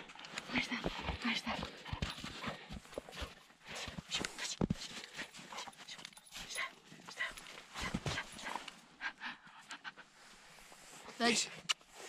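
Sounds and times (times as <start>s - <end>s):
paws crunching in snow: 0.4s - 8.8s
dog breathing and snuffling: 0.4s - 11.1s.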